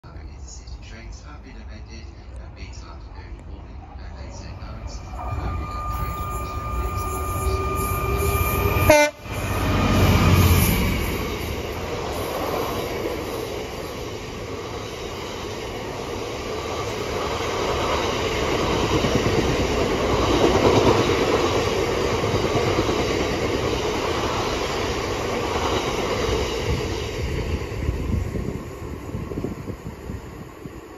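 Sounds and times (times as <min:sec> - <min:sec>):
freight train wheels rumbling: 0:00.0 - 0:30.9.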